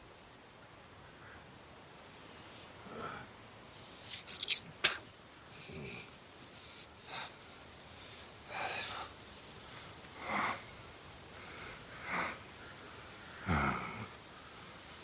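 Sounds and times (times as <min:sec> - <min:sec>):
man breathing heavily: 0:05.5 - 0:14.1.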